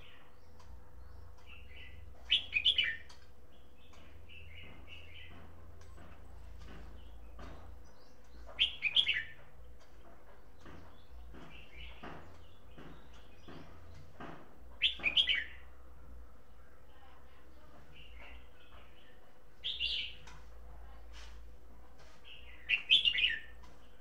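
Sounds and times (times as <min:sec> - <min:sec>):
soft bird chirps: 0:00.0 - 0:14.1, 0:14.8 - 0:15.8, 0:16.5 - 0:24.0.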